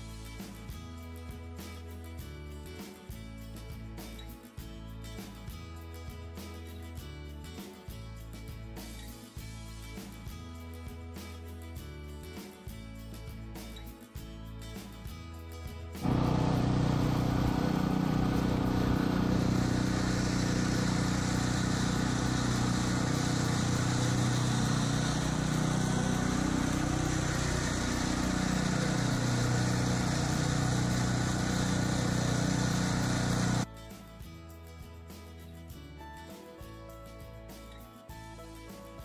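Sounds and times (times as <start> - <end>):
lawn mower running: 16.0 - 33.7.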